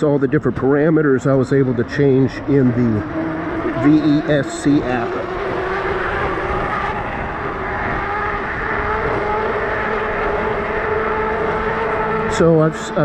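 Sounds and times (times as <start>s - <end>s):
tires rumbling on road: 0.0s - 13.0s
wind on microphone: 3.4s - 10.5s
electric bike motor whine: 4.9s - 12.5s.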